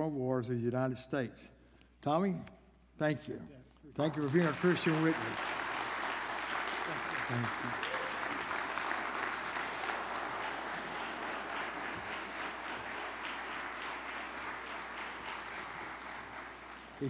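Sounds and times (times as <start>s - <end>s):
congregation applauding: 3.9s - 17.0s.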